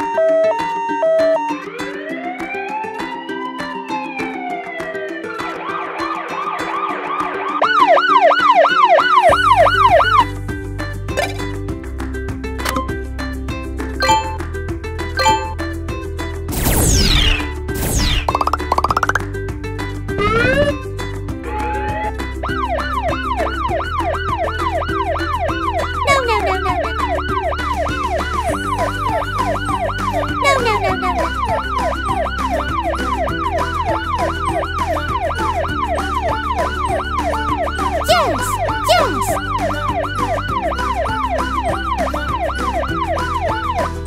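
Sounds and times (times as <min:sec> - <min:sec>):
electronic yelp siren: 0:00.0 - 0:10.3, 0:14.0 - 0:14.4, 0:16.6 - 0:19.2, 0:20.2 - 0:20.8, 0:21.5 - 0:44.0
background music with beat: 0:00.0 - 0:44.0.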